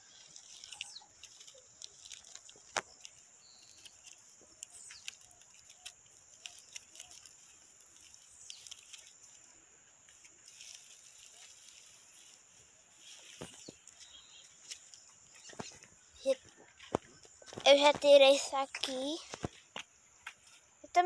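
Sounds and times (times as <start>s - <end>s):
stems and plastic rustling: 0.0s - 21.0s
small clicks: 0.3s - 9.2s.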